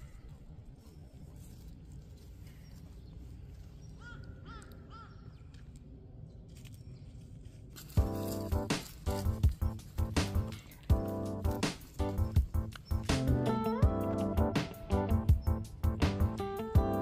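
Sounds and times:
low outdoor background noise: 0:00.0 - 0:17.0
crow cawing: 0:04.0 - 0:05.3
music: 0:07.8 - 0:17.0.

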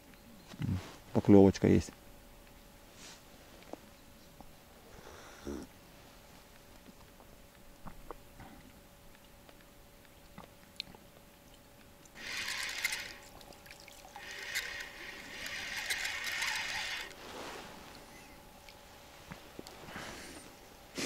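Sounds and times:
fish splashing water: 0:11.5 - 0:17.2
fishing reel winding: 0:12.2 - 0:17.2.

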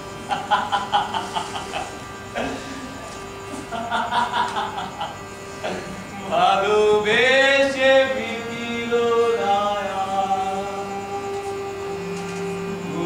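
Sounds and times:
steady drone: 0:00.0 - 0:13.0
man singing: 0:06.1 - 0:13.0.

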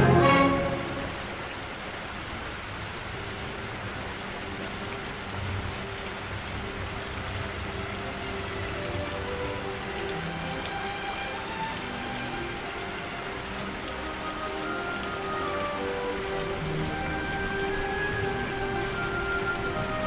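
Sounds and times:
steady rain falling: 0:00.0 - 0:20.0.

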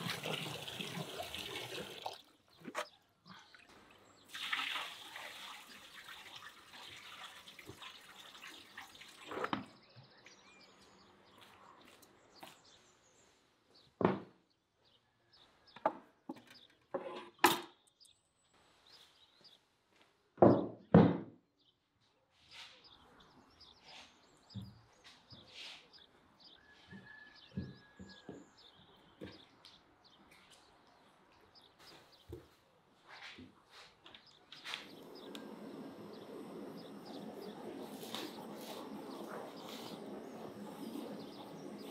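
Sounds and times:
tap water running into basin: 0:00.0 - 0:02.4, 0:04.3 - 0:09.4.

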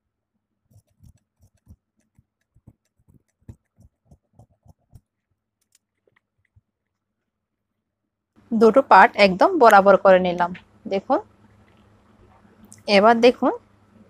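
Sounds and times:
scissors snipping fabric: 0:00.7 - 0:05.0.

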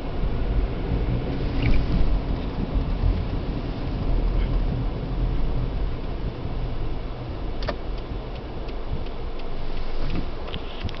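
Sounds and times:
car engine and road rumble: 0:00.0 - 0:11.0
light evenly spaced ticks: 0:07.6 - 0:11.0.

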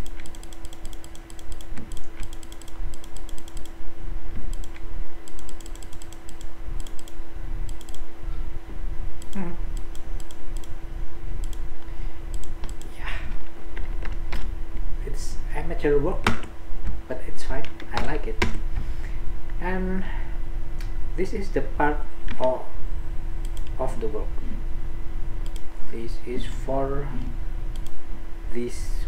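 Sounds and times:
computer keys clicking: 0:00.0 - 0:03.8, 0:04.5 - 0:08.1, 0:09.2 - 0:10.8, 0:11.4 - 0:11.7, 0:12.3 - 0:13.0, 0:23.4 - 0:23.8, 0:25.4 - 0:25.7, 0:27.7 - 0:28.0
steady low hum: 0:00.0 - 0:29.0.

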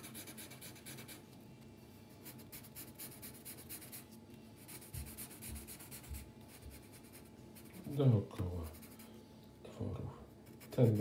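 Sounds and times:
pencil scratching on paper: 0:00.0 - 0:01.2, 0:02.2 - 0:09.1, 0:10.4 - 0:11.0.

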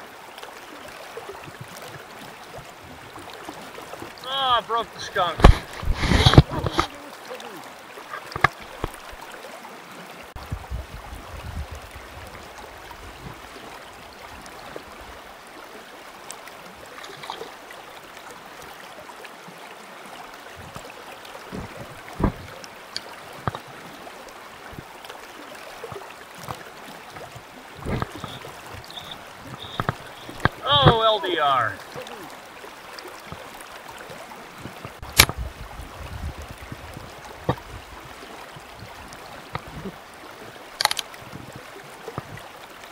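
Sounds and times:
creek running over a riffle: 0:00.0 - 0:42.9
small splashes in water: 0:13.2 - 0:35.4.

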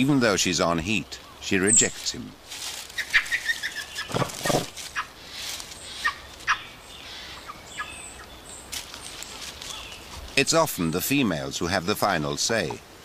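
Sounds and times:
small birds chirping: 0:00.0 - 0:13.0
monkeys giving harsh calls: 0:02.9 - 0:08.0.

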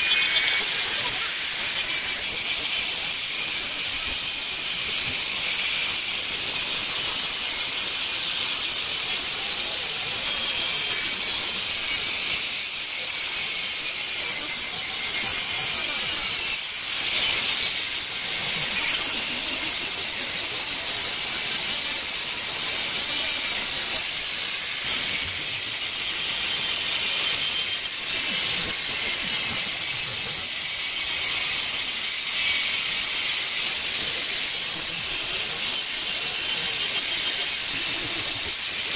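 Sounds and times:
angle grinder polishing stone: 0:00.0 - 0:38.9.

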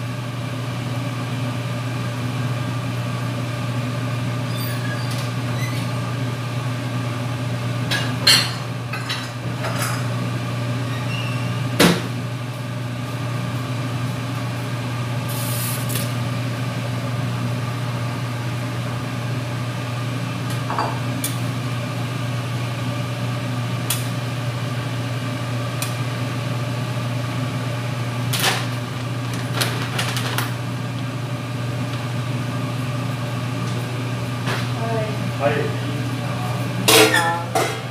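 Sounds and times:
dishes and cookware clinking: 0:36.9 - 0:37.9.

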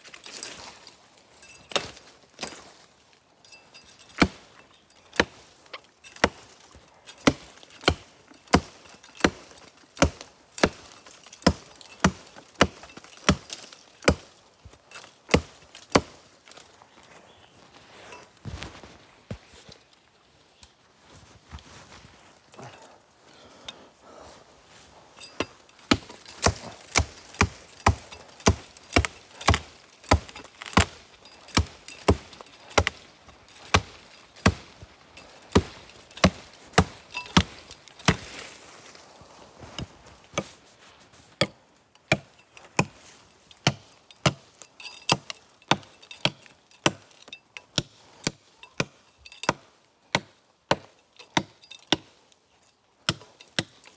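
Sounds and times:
blade chopping into tree: 0:25.8 - 0:33.0, 0:33.6 - 0:34.8.

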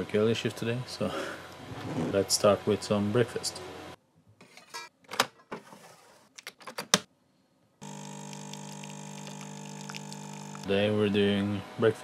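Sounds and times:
espresso machine pump humming: 0:07.8 - 0:10.8.

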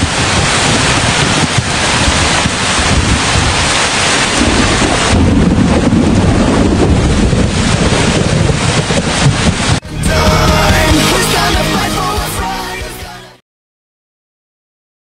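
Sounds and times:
thunder rumbling: 0:00.0 - 0:11.6
rain hissing: 0:00.0 - 0:13.2.

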